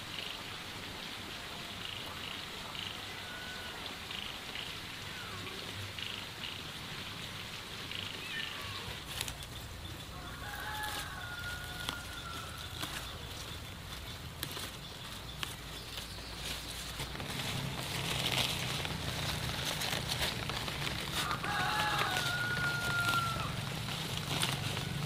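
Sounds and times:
faint high bird calls: 7.8s - 17.4s
straw rustling and crackling: 7.9s - 25.0s.

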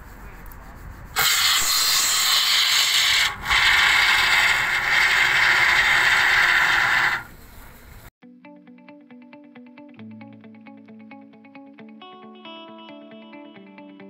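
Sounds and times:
aerosol foam spraying hiss: 1.2s - 8.1s
guitar music: 8.2s - 14.0s.

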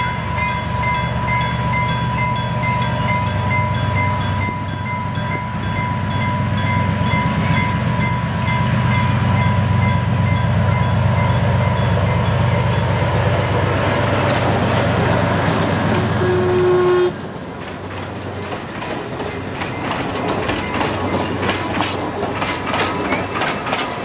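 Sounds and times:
level crossing warning bell: 0.0s - 13.0s
diesel locomotive passing: 0.0s - 24.0s.

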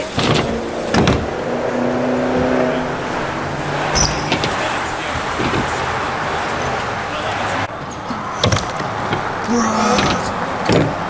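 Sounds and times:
bike tyres rolling: 0.0s - 11.0s
bike landing knocks: 3.9s - 6.0s.

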